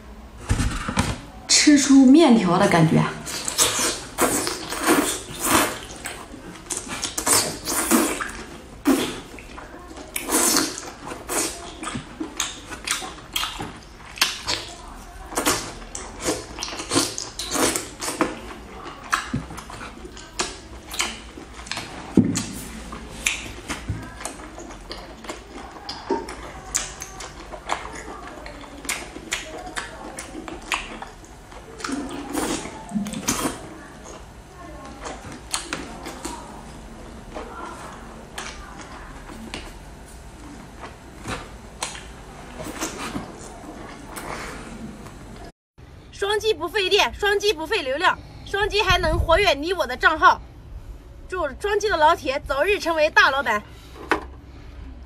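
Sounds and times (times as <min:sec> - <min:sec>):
wet slurping and lip-smacking: 0:03.2 - 0:34.2
chewing: 0:03.2 - 0:45.5.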